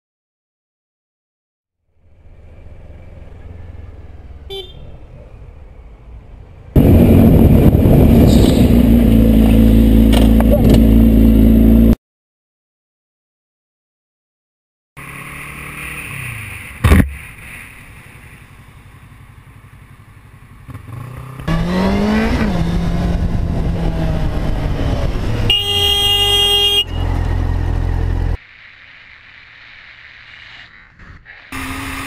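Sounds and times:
vehicle horn: 4.5 - 4.9, 8.3 - 8.8, 25.4 - 27.2
motorcycle engine running: 6.8 - 12.0.

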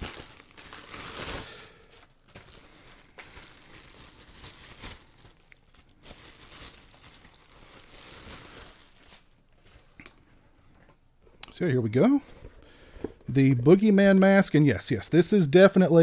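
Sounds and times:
plastic bag crinkling: 0.0 - 9.9.

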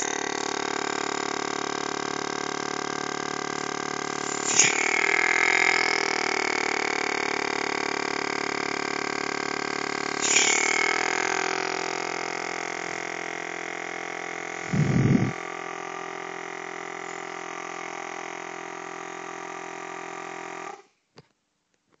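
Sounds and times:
compressor pump motor hum: 0.0 - 20.9
brief low rumble: 14.7 - 15.4.

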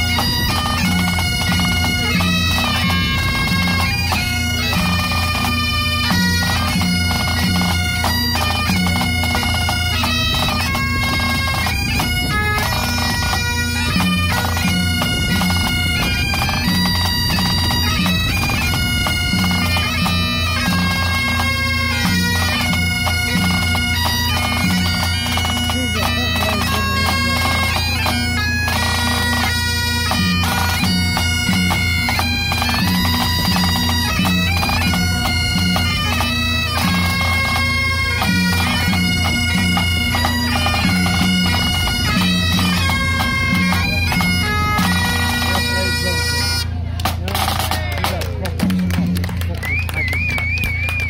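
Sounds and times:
bagpipes playing a march: 0.0 - 51.0
snare and tenor drums: 12.6 - 51.0.

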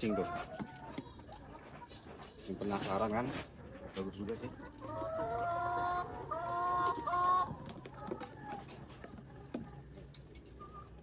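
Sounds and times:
chicken squawking: 4.5 - 7.6.

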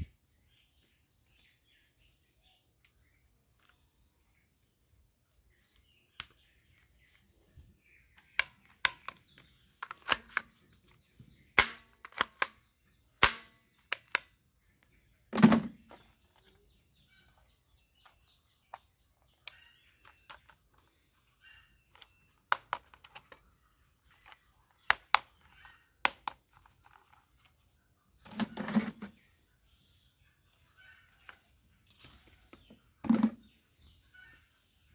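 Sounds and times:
plastic toy gun clicks: 8.2 - 10.6, 11.6 - 12.6, 13.2 - 14.3, 24.2 - 25.3, 26.0 - 26.4.

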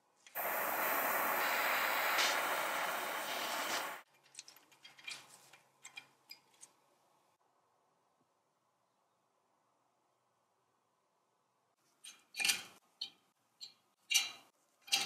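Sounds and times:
loud steady hiss: 0.4 - 4.0.

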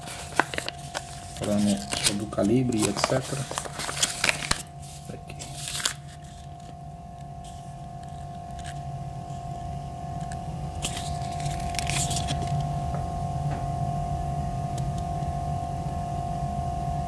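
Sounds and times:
paper rustling and crinkling: 0.0 - 6.8, 7.4 - 8.8, 10.2 - 12.6.

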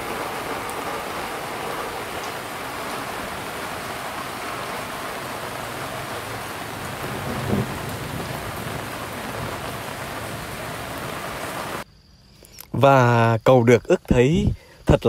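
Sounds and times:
rain falling: 0.0 - 11.8.

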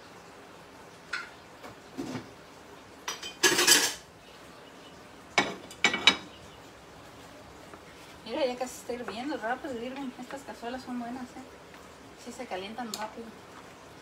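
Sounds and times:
dishes clattering: 3.0 - 4.1, 5.4 - 6.4
plate clinking on iron grate: 3.1 - 4.0, 5.4 - 6.3.

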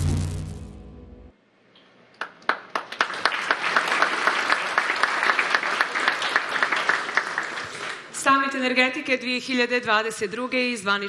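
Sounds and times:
music with deep drone: 0.0 - 1.3
audience applause: 2.2 - 8.2.

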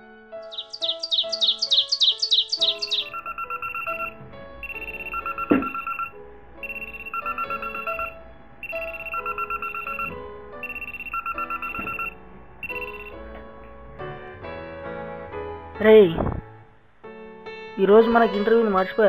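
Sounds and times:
phone alarm beeping: 0.5 - 13.2.

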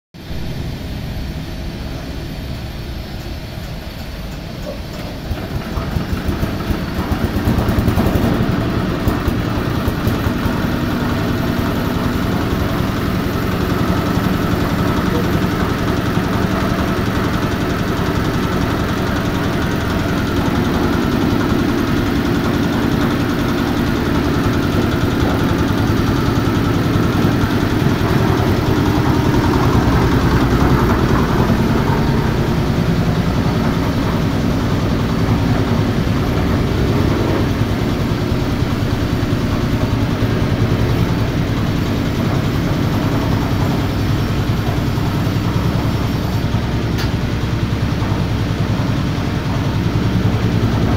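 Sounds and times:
concrete mixer diesel engine running: 0.2 - 50.9.

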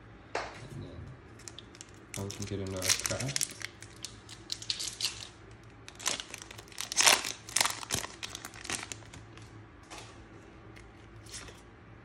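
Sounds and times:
foil wrapper tearing and crinkling: 1.4 - 9.4.

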